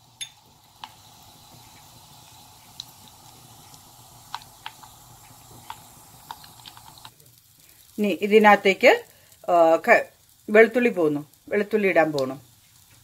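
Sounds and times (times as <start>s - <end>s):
seeds sizzling in oil: 0.0s - 13.0s
seeds popping: 1.6s - 7.2s.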